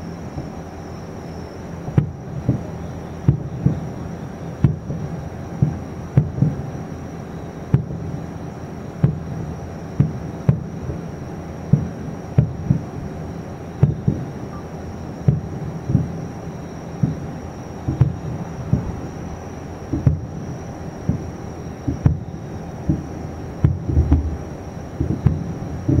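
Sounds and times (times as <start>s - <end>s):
distant firework booms: 13.8s - 14.3s, 17.8s - 19.1s, 19.9s - 26.0s.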